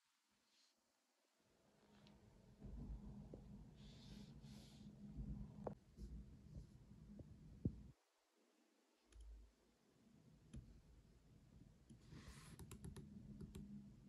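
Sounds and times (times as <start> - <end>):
low hum: 2.1 - 7.9.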